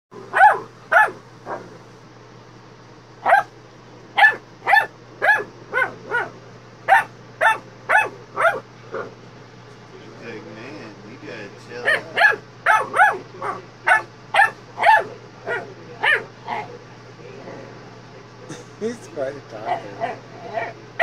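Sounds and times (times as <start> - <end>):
small dog barking: 0.2 - 1.8, 3.2 - 3.5, 4.2 - 9.2, 11.8 - 16.8, 19.6 - 21.0.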